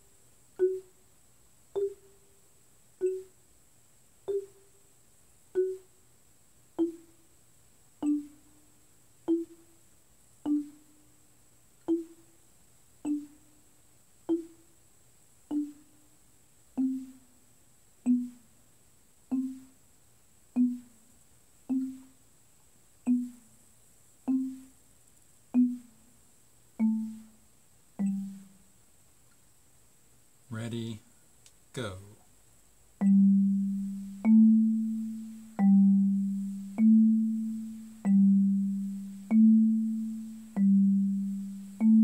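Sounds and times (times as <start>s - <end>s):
marimba notes: 0.6s - 0.9s, 1.8s - 2.2s, 3.0s - 3.4s, 4.3s - 4.6s, 5.6s - 5.9s, 6.8s - 7.2s, 8.0s - 8.5s, 9.3s - 9.7s, 10.4s - 10.9s, 11.9s - 12.3s, 13.0s - 13.4s, 15.5s - 15.9s, 16.8s - 17.3s, 18.0s - 18.5s, 19.3s - 19.8s, 20.6s - 21.0s, 21.7s - 22.2s, 23.0s - 23.4s, 24.3s - 24.7s, 25.5s - 26.0s, 26.8s - 27.4s, 28.0s - 28.6s, 33.0s - 42.0s.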